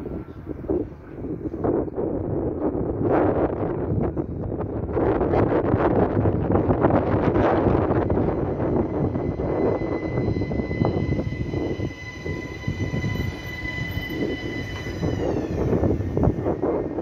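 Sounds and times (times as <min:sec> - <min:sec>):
train wheels rumbling on track: 0:00.0 - 0:17.0
high-pitched train whine: 0:04.9 - 0:17.0.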